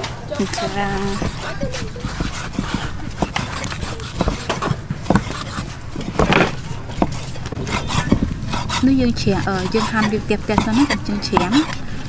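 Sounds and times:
cleaver knocking on wooden board: 2.0s - 7.2s.

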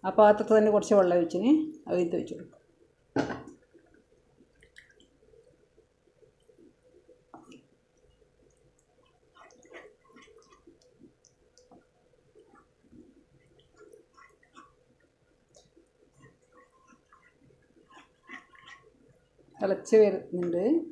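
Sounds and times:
faint steady hum: 0.0s - 20.9s
sauce squishing: 3.7s - 19.6s.

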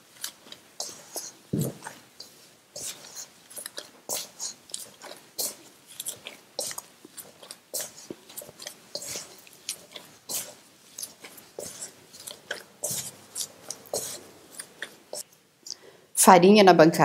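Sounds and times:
gloved hands kneading dough: 0.0s - 15.6s.

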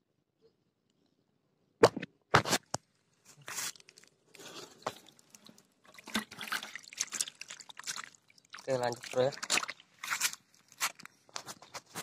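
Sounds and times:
dry grass crunching: 9.2s - 12.0s.

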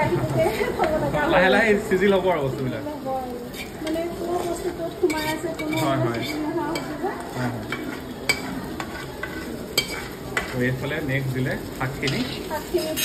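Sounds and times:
frying sizzle: 0.0s - 13.0s
metal ladle scraping a pan: 3.4s - 10.8s, 12.0s - 13.0s.

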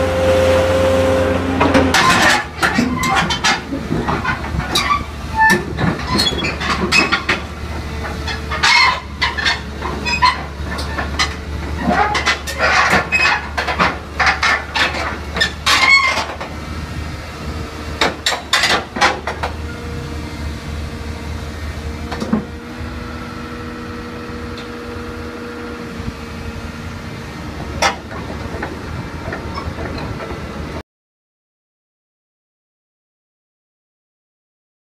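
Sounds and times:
metallic clanks from tracks: 0.0s - 16.6s, 17.9s - 20.0s, 27.6s - 30.8s
excavator diesel engine running: 0.0s - 30.8s.

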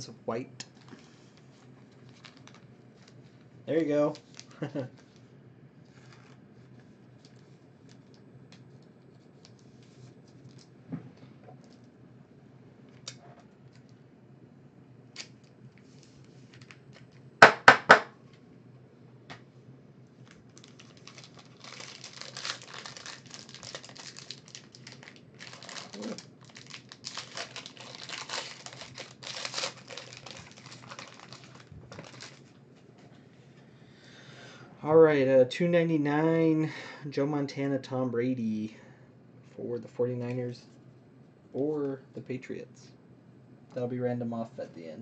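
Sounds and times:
foil wrapper tearing and crinkling: 1.9s - 3.2s, 4.2s - 5.0s, 20.2s - 32.5s
sharp knocks: 17.4s - 18.1s.

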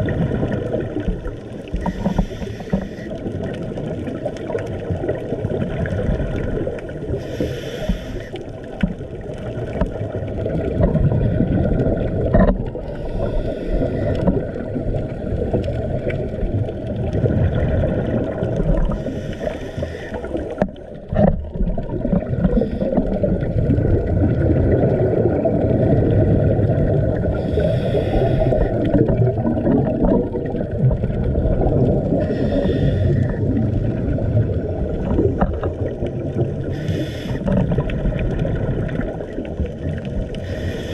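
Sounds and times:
low rumble of water: 0.0s - 40.9s
diver breathing through regulator: 1.7s - 3.2s, 7.2s - 8.4s, 12.8s - 14.4s, 18.8s - 20.6s, 22.4s - 23.3s, 27.2s - 29.0s, 32.2s - 33.6s, 36.6s - 37.8s, 40.4s - 40.9s.

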